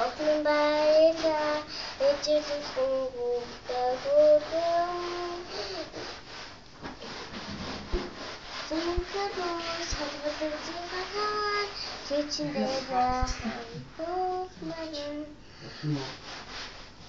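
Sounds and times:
girl singing: 0:00.0 - 0:06.2, 0:08.6 - 0:15.4.

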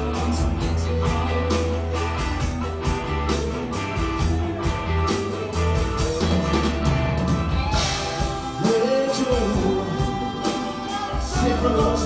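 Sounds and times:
person singing: 0:00.0 - 0:02.4, 0:07.5 - 0:12.0
bass line: 0:00.0 - 0:12.0
electric guitar: 0:00.0 - 0:12.0
drum beat: 0:00.7 - 0:12.0.

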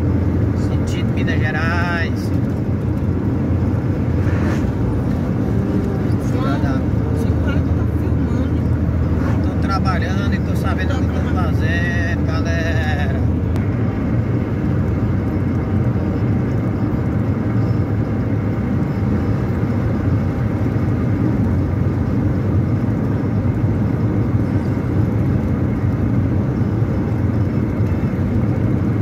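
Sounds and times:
car engine and tyre drone: 0:00.0 - 0:29.0.

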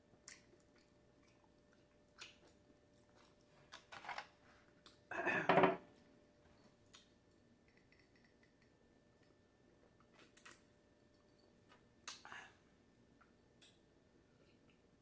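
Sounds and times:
tableware clatter: 0:05.2 - 0:05.8.

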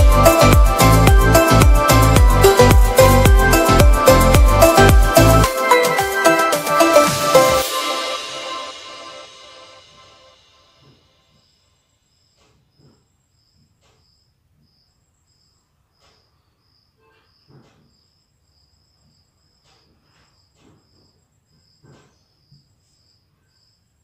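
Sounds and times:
cricket chirping faintly: 0:10.8 - 0:24.0.

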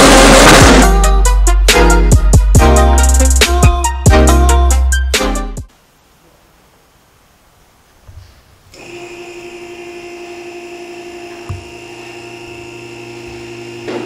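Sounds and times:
hydraulic pump motor humming: 0:00.0 - 0:00.8, 0:08.7 - 0:14.0.

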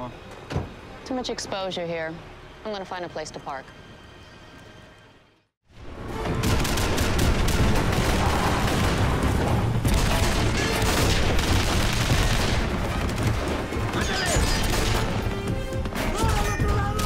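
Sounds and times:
automatic gunfire: 0:09.9 - 0:13.6.

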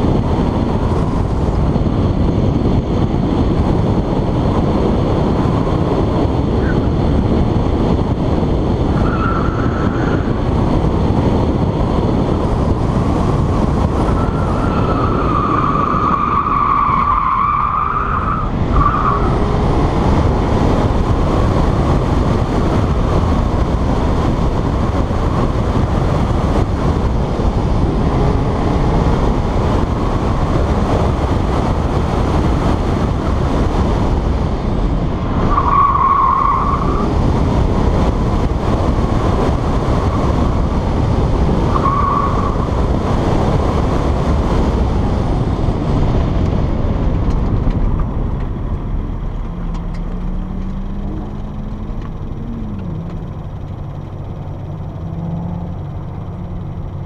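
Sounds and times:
car engine and wind rushing: 0:00.0 - 0:57.0
tires squealing: 0:08.6 - 0:34.1, 0:34.7 - 0:44.8.

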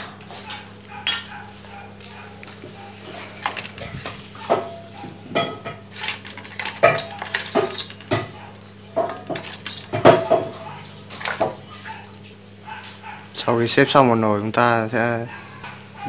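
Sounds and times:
chopsticks clacking on shells and pot: 0:05.4 - 0:11.4.

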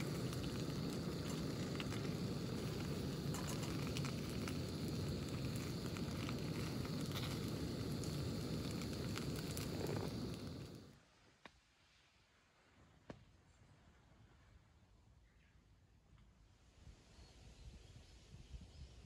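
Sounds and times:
toast sizzling in a pan: 0:00.0 - 0:11.0
gas burner flame: 0:00.0 - 0:11.1.

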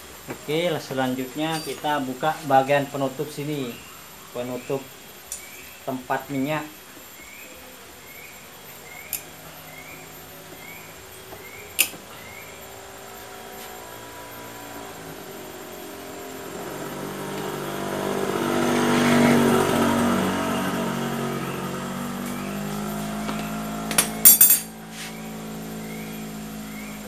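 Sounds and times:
motorcycle passing by: 0:12.3 - 0:27.0.

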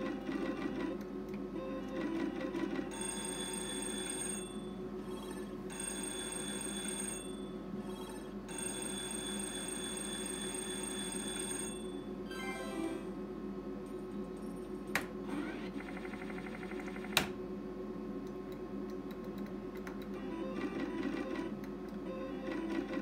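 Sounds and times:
slot machine reels ticking: 0:02.0 - 0:13.0
electronic win bell ringing: 0:08.5 - 0:13.2.

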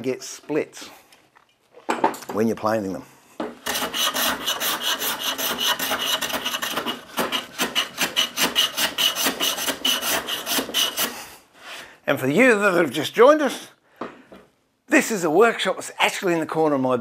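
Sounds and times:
hand plane shaving wood: 0:03.7 - 0:11.2.

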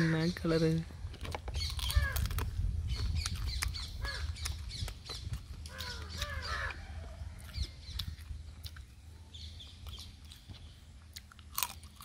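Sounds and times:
birds squawking: 0:01.6 - 0:02.4, 0:03.4 - 0:07.7.

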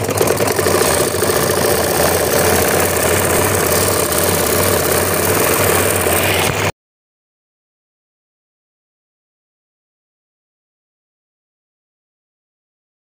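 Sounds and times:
low hum: 0:00.0 - 0:06.7
sewing machine rattling: 0:00.0 - 0:06.7.

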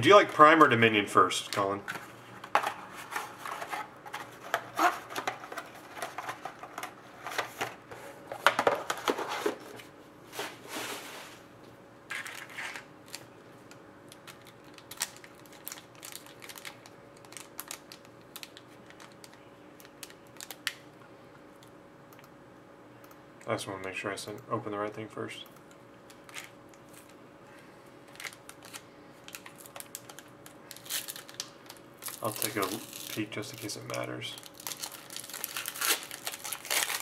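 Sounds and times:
foil card pack rustling: 0:01.5 - 0:07.8, 0:28.1 - 0:37.0.

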